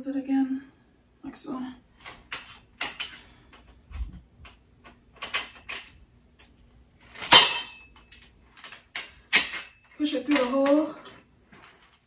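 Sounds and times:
metal parts clicking and knocking: 0:02.0 - 0:03.7, 0:04.4 - 0:12.0
loud metallic clank: 0:07.2 - 0:07.9.

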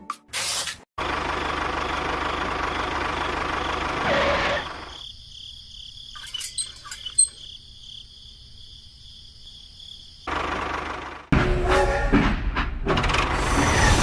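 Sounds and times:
crickets chirping: 0:04.6 - 0:10.4.

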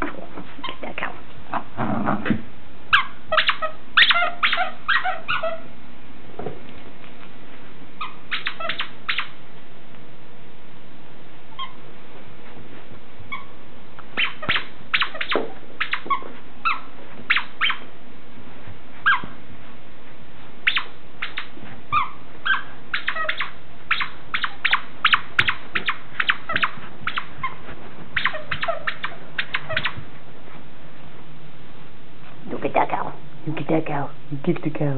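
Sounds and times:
squeak toy squeaking: 0:02.9 - 0:05.7, 0:08.0 - 0:09.4, 0:14.2 - 0:17.9, 0:19.0 - 0:19.3, 0:20.6 - 0:27.6, 0:28.2 - 0:30.0.

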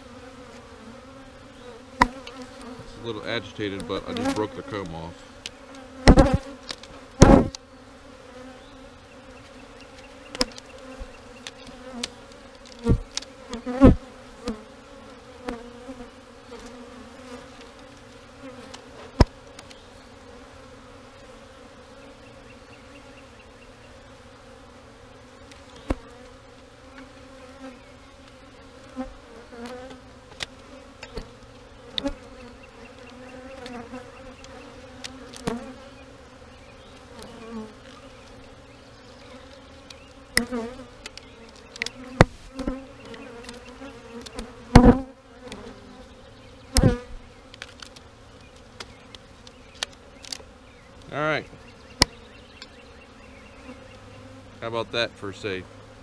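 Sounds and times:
honeybees buzzing: 0:00.0 - 0:56.0.

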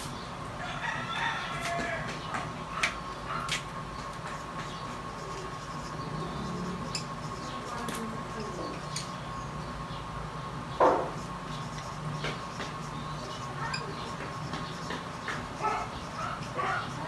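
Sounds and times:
marker scratching on paper: 0:02.8 - 0:08.8, 0:11.0 - 0:17.0
marker taps: 0:11.8 - 0:12.8, 0:13.7 - 0:15.5.

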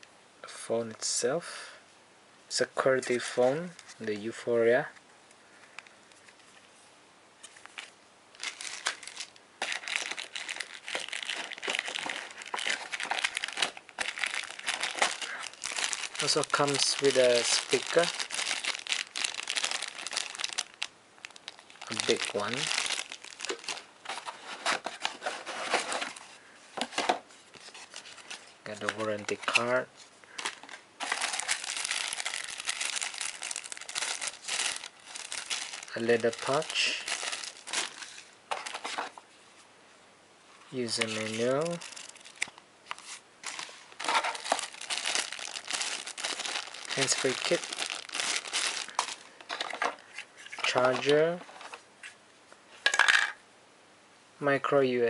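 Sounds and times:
plastic packaging crinkling: 0:07.4 - 0:39.2, 0:40.8 - 0:51.8.

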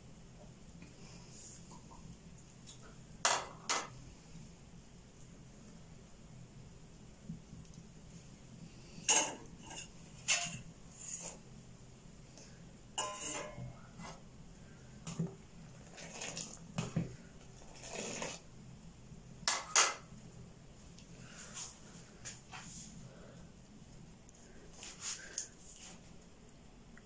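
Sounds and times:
metal utensils and dishes clattering: 0:09.0 - 0:11.4, 0:13.0 - 0:14.2.

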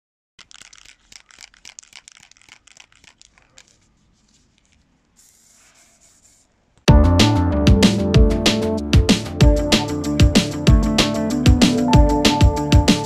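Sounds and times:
spray can ball rattling: 0:00.4 - 0:06.5.

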